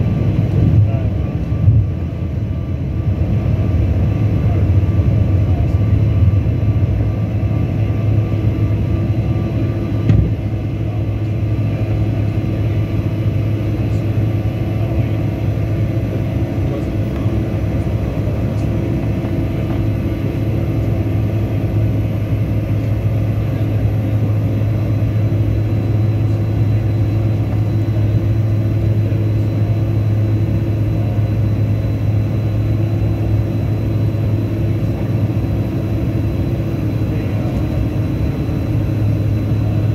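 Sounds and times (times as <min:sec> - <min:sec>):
jet engine drone in cabin: 0:00.0 - 0:39.9
brief knock: 0:10.1 - 0:10.4.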